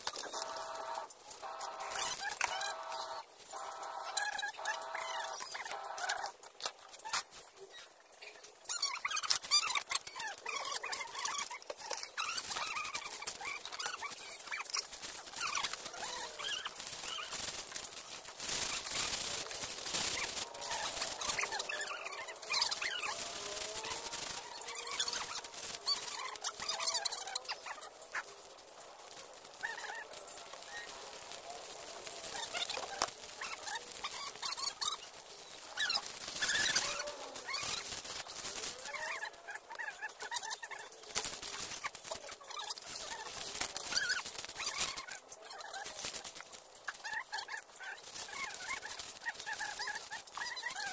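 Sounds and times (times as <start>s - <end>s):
chickens clucking: 0.0s - 6.7s
fowl calling: 0.2s - 6.3s.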